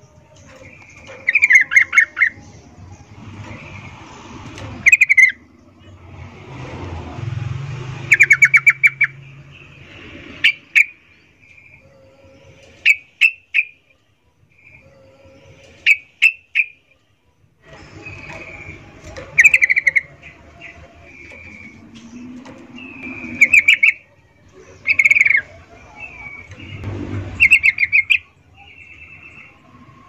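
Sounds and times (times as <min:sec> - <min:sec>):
bird chattering calls: 0:18.0 - 0:21.8, 0:22.8 - 0:24.1, 0:24.8 - 0:26.8, 0:27.4 - 0:28.4.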